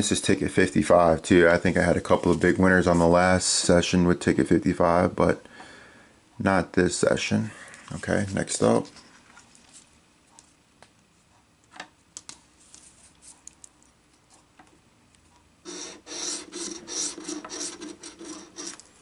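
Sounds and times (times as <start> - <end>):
scratching lottery ticket: 15.7 - 18.9.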